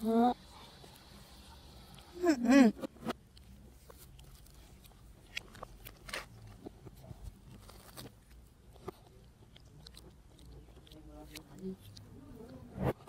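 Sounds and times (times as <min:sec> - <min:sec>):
crunching and chewing pastry: 0:03.0 - 0:12.6.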